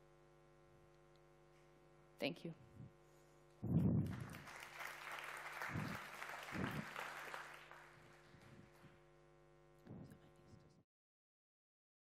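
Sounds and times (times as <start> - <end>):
audience applauding: 4.0 - 8.5.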